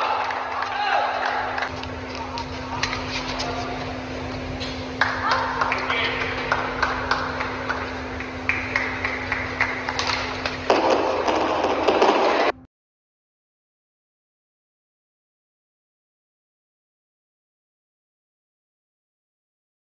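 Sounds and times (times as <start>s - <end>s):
crowd clapping and cheering: 0.0s - 12.6s
scattered voices: 0.0s - 12.6s
steady low hum: 0.0s - 12.7s.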